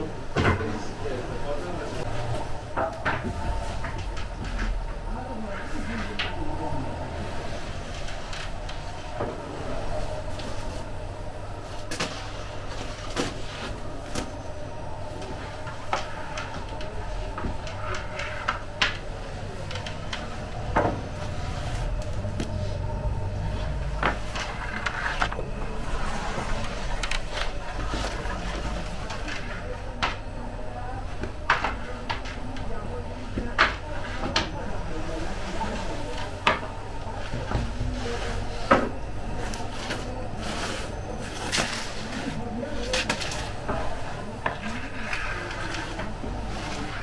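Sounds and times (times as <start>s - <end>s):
gas burner flame rumble: 0.0s - 47.0s
steady low hum: 0.0s - 47.0s
wooden peel scraping oven floor: 39.9s - 47.0s.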